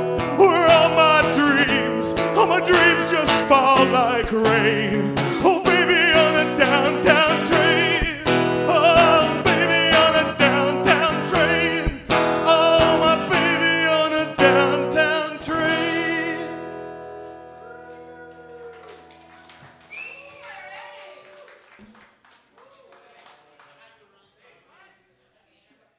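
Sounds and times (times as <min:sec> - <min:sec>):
strummed acoustic guitar: 0:00.0 - 0:18.2.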